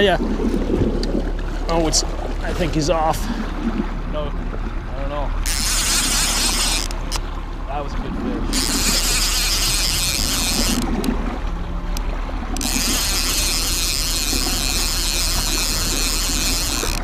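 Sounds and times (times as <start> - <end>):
boat rumble: 0.0 - 17.0
wind: 0.0 - 17.0
reel clicks: 5.3 - 7.6, 8.5 - 17.0
fishing reel gears whirring: 5.3 - 7.8, 8.4 - 17.0.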